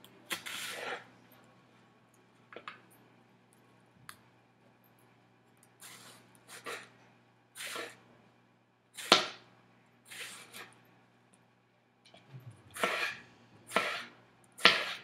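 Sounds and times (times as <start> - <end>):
knife slicing tomato: 0.3 - 1.1, 7.6 - 8.0, 12.7 - 15.0.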